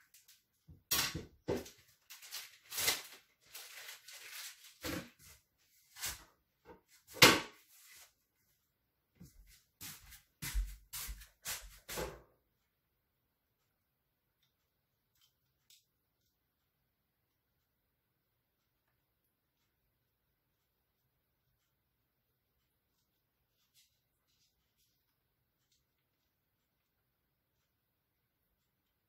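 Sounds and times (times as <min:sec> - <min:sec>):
kitchen items knocking and clunking: 0:00.6 - 0:03.1, 0:06.6 - 0:07.6.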